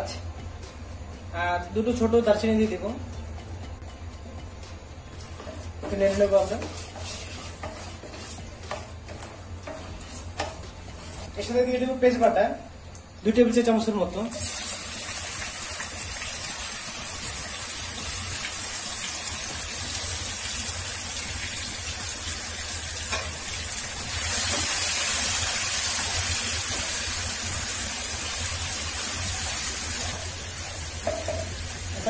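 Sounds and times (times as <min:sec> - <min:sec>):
onion paste frying in oil: 0:05.2 - 0:11.8, 0:13.3 - 0:32.0.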